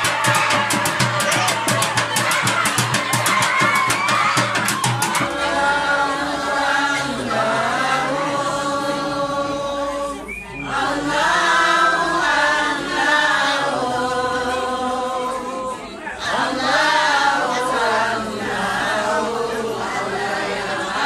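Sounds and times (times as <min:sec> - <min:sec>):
hand drums beating quickly: 0:00.0 - 0:05.6
men chanting together: 0:05.1 - 0:21.0.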